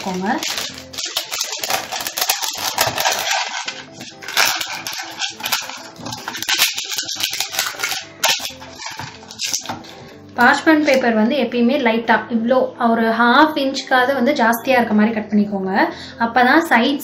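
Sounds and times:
parchment paper crinkling: 0.0s - 11.0s.

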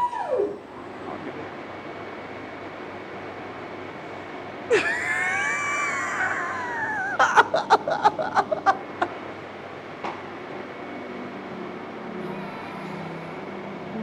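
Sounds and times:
high wavering squeal: 0.0s - 0.7s
man laughing hard: 4.7s - 9.2s.

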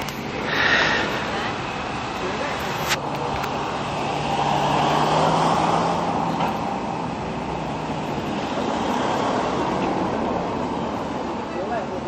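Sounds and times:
car driving past: 3.8s - 10.1s.

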